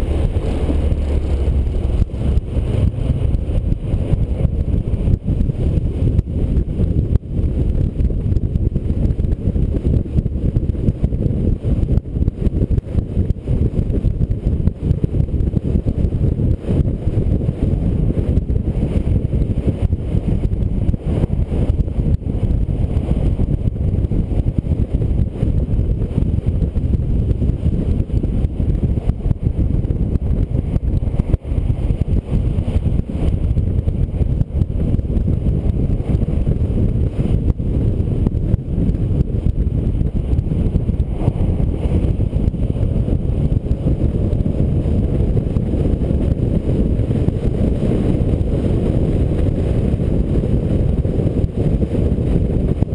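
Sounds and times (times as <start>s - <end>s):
road rumble: 0.0s - 52.9s
wind noise: 0.0s - 52.9s.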